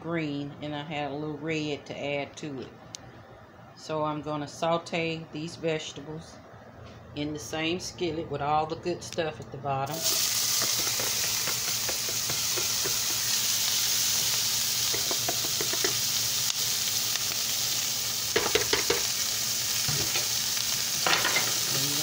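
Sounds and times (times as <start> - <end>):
vegetables sizzling in a skillet: 9.9 - 22.0.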